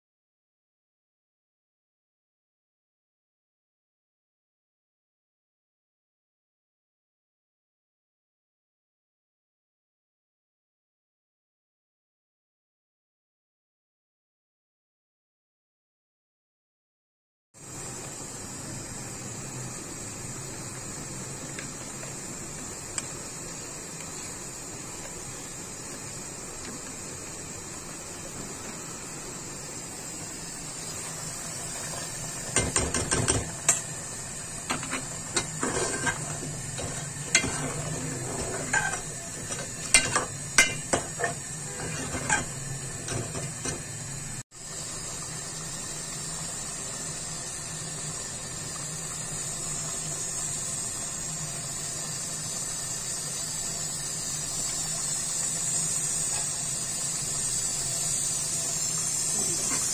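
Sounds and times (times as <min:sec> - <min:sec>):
pot cooking hiss: 0:17.6 - 0:59.9
metal spoon scraping a pot: 0:34.7 - 0:43.8.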